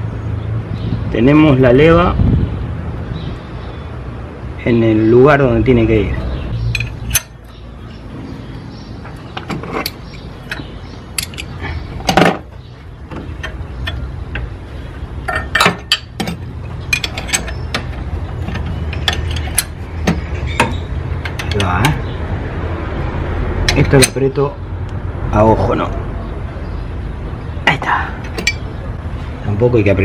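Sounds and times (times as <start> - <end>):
metallic clicks of hand tools: 6.8 - 7.4.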